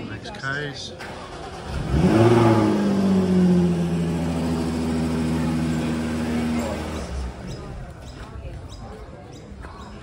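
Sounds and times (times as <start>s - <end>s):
car engine starting and idling: 0.6s - 7.7s.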